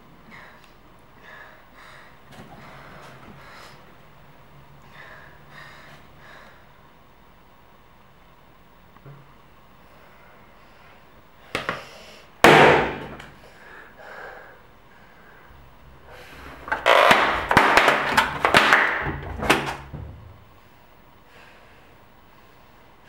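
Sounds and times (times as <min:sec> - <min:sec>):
loud sharp bang: 0:12.4 - 0:13.2.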